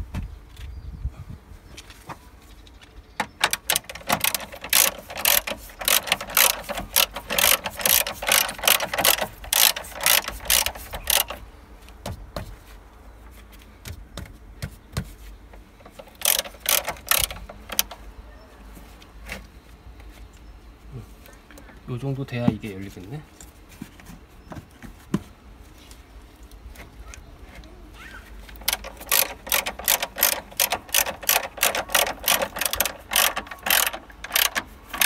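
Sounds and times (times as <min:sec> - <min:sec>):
ratchet wrench clicking: 0:03.4 - 0:11.4, 0:15.8 - 0:18.0, 0:28.6 - 0:35.0.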